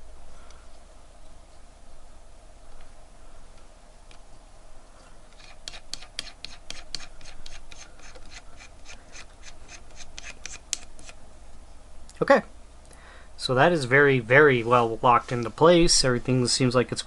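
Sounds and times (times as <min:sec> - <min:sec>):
soft handling noise: 0:14.5 - 0:16.5.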